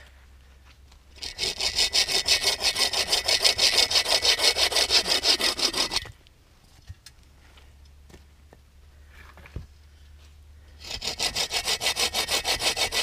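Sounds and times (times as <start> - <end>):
hand saw cutting branch: 1.2 - 6.1, 10.8 - 13.0.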